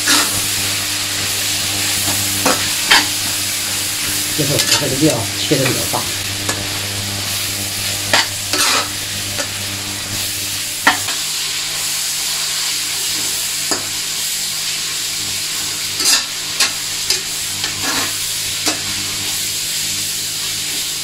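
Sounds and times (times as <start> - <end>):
metal spatula scraping a pan: 0.0 - 0.4, 4.4 - 6.8, 8.1 - 9.6, 16.0 - 18.8
food sizzling in a wok: 0.0 - 21.0.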